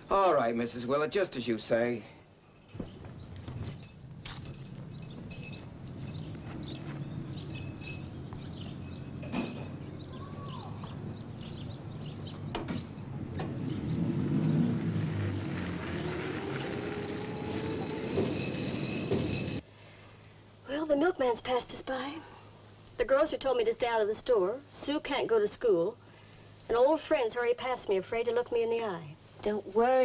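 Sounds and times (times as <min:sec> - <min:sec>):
birds chirping: 0:02.4 - 0:19.3
low hum: 0:02.4 - 0:19.6
electric vehicle motor whine: 0:04.9 - 0:19.6.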